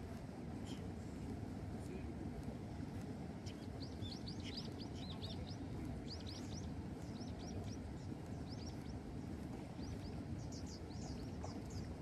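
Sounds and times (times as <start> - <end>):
steady low rumble: 0.0 - 12.0
small birds chirping: 2.7 - 12.0.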